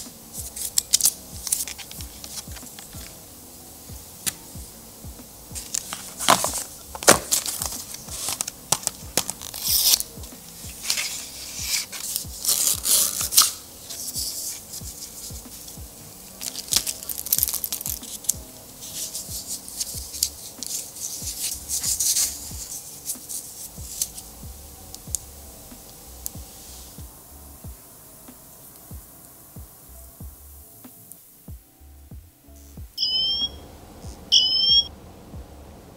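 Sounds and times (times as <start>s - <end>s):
paper and cardboard rustling: 0.0s - 3.2s, 5.5s - 24.3s
quiet background music: 0.0s - 35.9s.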